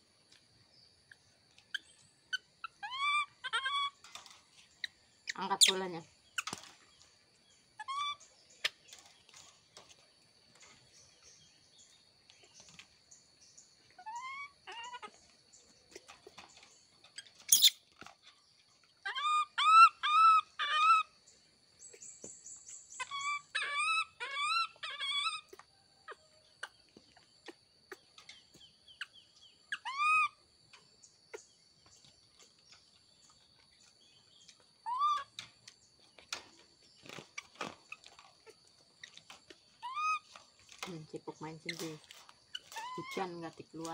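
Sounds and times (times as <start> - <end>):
baby monkeys squeaking: 1.6 - 6.7, 7.8 - 9.5, 14.0 - 15.3, 15.9 - 17.9, 19.0 - 21.1, 22.7 - 28.1, 29.0 - 30.4, 34.8 - 35.5, 37.0 - 43.9.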